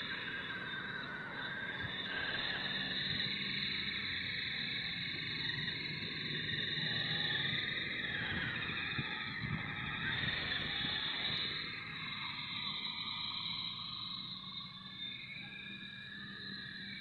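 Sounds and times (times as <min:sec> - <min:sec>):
electric motor and gearbox whining: 0:00.0 - 0:13.2.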